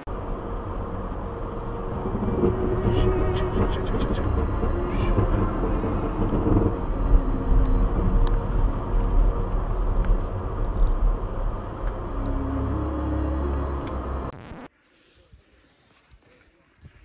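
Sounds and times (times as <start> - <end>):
tyres on wet road: 0.0 - 14.4
car engine rumble: 0.0 - 14.5.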